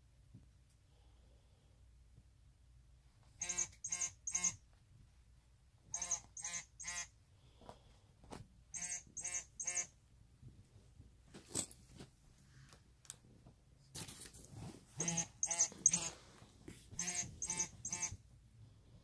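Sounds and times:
high-pitched electronic squeaks: 3.4s - 4.6s, 15.0s - 16.2s, 17.0s - 18.2s.

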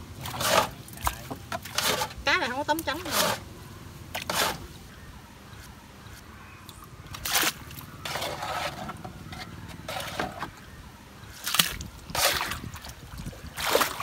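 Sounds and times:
water sloshing and splashing: 0.0s - 3.4s, 6.6s - 10.7s, 11.3s - 14.0s.

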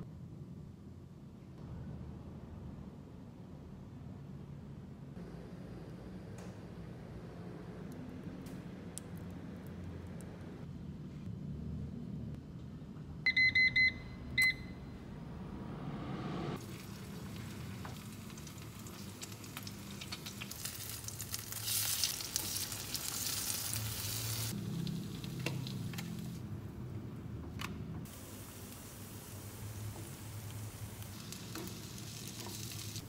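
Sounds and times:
kitchen appliance beeps: 13.3s - 14.9s
batter sizzling in oil: 16.6s - 26.4s, 28.1s - 33.0s.

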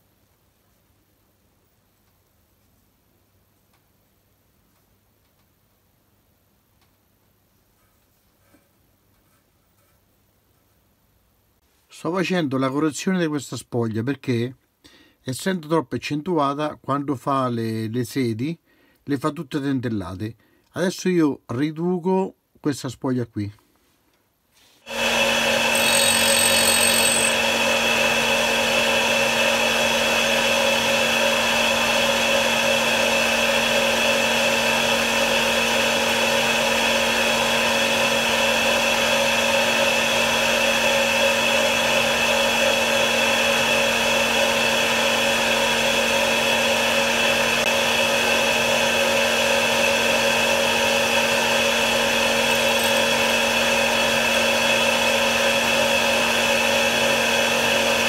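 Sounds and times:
grinder motor running: 24.9s - 58.0s.

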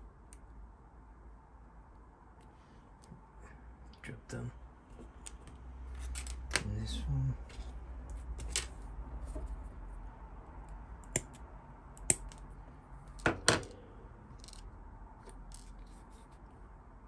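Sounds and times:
faint scraping and handling: 15.2s - 16.6s.

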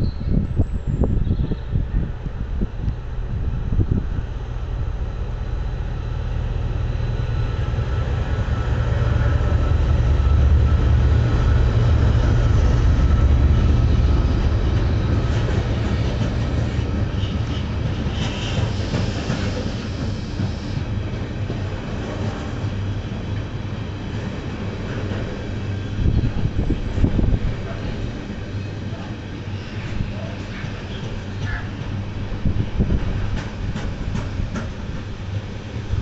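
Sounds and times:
diesel locomotive engine rumble: 0.0s - 36.0s
train wheels clicking over rails: 11.3s - 25.6s, 29.7s - 36.0s.

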